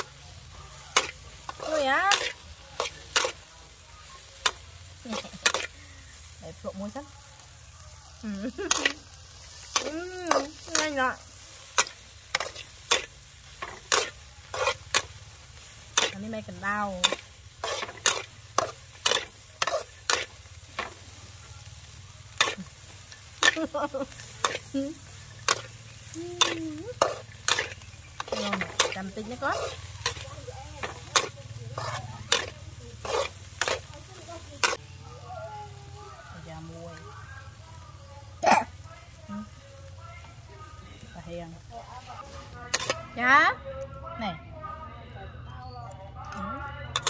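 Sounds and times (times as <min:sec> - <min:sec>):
metal spatula scraping a wok: 0:00.0 - 0:06.7, 0:08.6 - 0:35.0, 0:42.2 - 0:43.3
frying sizzle: 0:00.0 - 0:43.6.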